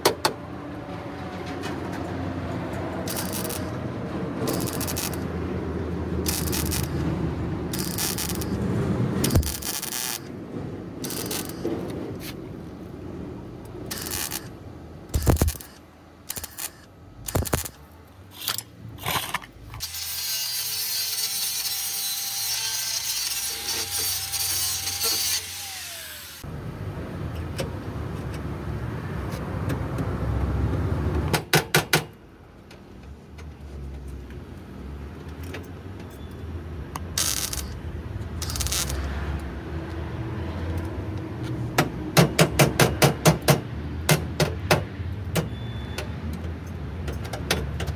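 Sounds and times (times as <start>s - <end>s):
angle grinder cutting sheet metal: 3.0s - 3.8s, 4.4s - 5.3s, 6.2s - 7.0s, 7.8s - 8.6s, 9.2s - 10.3s, 11.0s - 11.7s, 13.9s - 14.5s, 18.4s - 26.4s, 37.2s - 37.7s, 38.4s - 39.1s.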